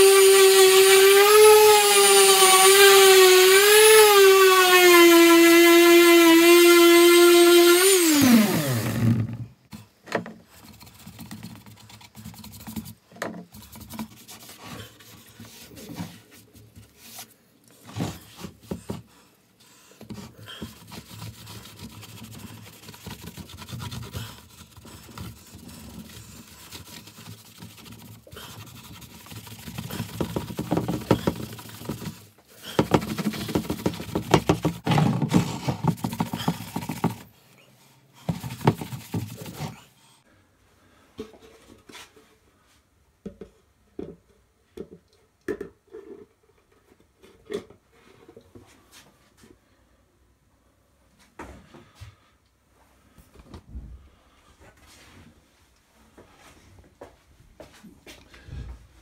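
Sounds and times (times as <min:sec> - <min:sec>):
orbital sander spinning down: 0:00.0 - 0:09.4
scrapes and knocks: 0:20.0 - 0:37.4, 0:38.2 - 0:39.8.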